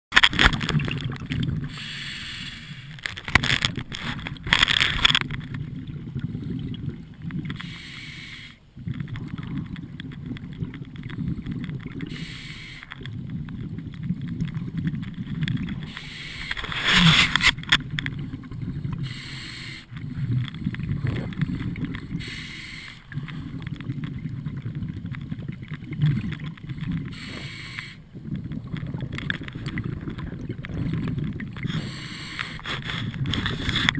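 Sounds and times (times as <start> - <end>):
exhaled bubbles gushing: 0.4 - 1.8, 3.3 - 7.8, 8.7 - 19.3, 19.9 - 22.4, 23.0 - 33.9
low underwater rumble: 19.9 - 22.4, 23.1 - 32.0.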